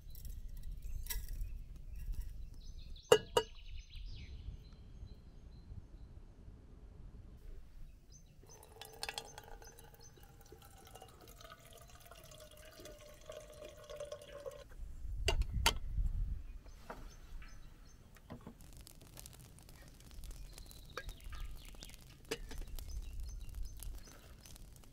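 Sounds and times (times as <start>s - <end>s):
water pouring into a teapot: 8.4s - 14.7s.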